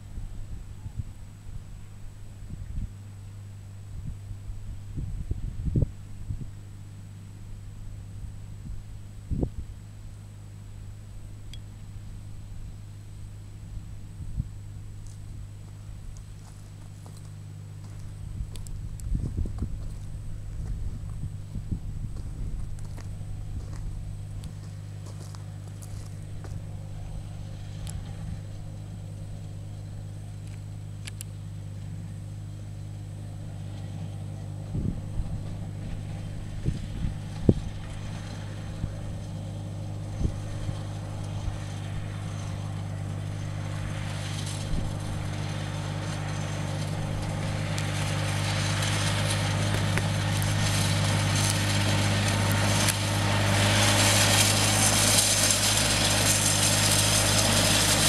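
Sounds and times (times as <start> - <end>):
tractor engine running: 0.0 - 58.0
tyres crunching on gravel: 14.7 - 58.0.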